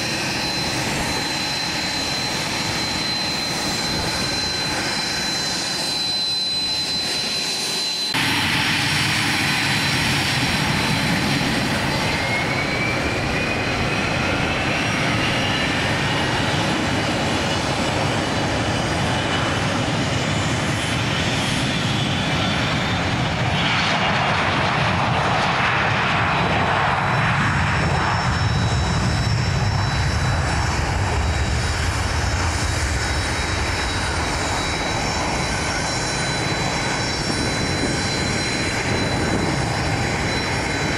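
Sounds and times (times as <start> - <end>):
deep rushing engine noise: 0.0 - 40.9
jet engines whining: 0.0 - 40.9.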